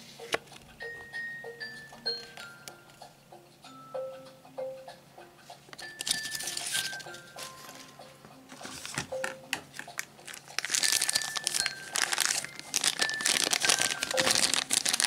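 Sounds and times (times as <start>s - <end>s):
plastic wrapper crinkling: 6.0s - 7.9s, 8.7s - 15.0s.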